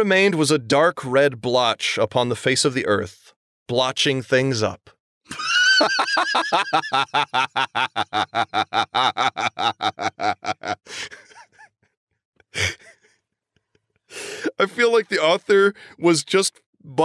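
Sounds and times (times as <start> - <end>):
person laughing hard: 5.3 - 11.7, 12.6 - 13.0.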